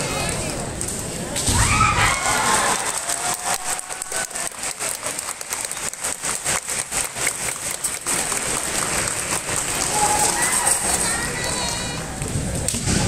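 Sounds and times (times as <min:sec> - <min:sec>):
spectators clapping: 0:02.0 - 0:12.3.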